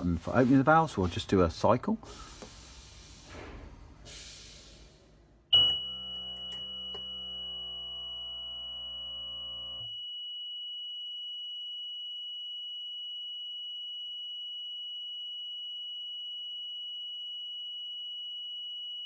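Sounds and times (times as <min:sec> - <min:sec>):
high-pitched beep tone: 0:05.5 - 0:09.6.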